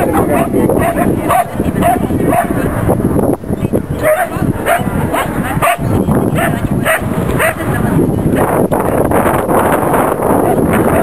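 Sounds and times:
dog barking: 0.2 - 2.7, 4.0 - 7.7.

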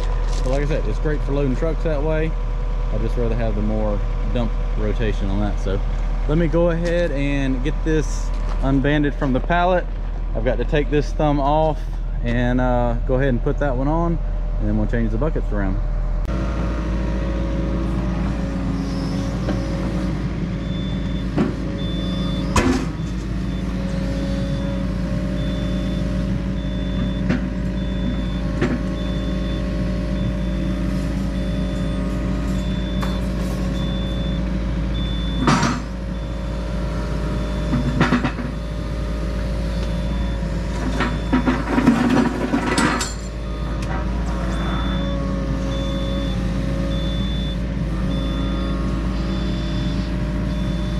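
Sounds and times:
diesel engine running: 0.0 - 50.9
metal clanks: 40.8 - 44.4.

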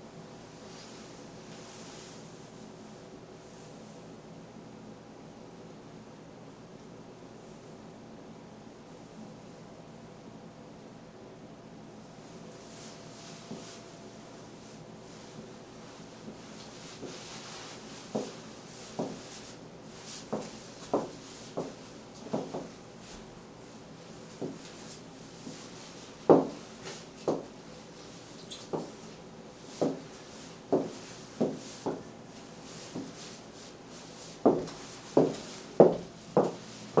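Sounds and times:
high-heeled footsteps on hard floor: 18.1 - 18.4, 19.0 - 19.3, 20.3 - 22.7, 24.4 - 24.7, 26.3 - 27.5, 28.7 - 29.0, 29.7 - 32.1, 32.9 - 33.3, 34.2 - 37.0.

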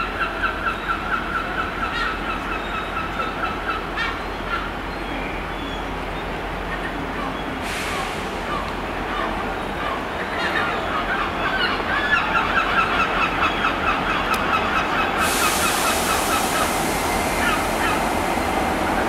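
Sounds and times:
diesel locomotive rumble: 0.0 - 19.0
steady hiss: 15.2 - 19.0.

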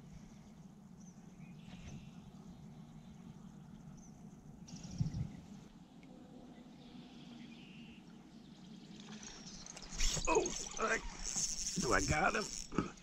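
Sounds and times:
fishing reel ticking: 9.1 - 13.0.

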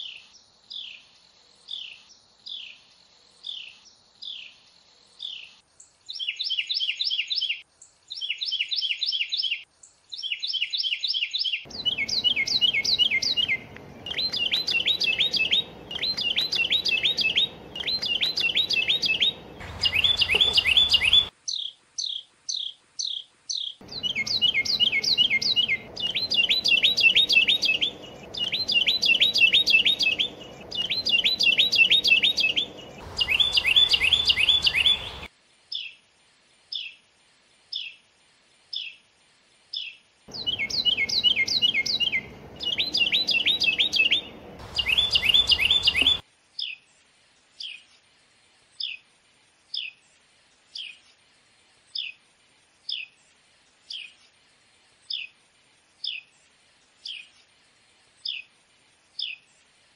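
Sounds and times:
wren singing: 6.1 - 35.9, 39.8 - 46.8.

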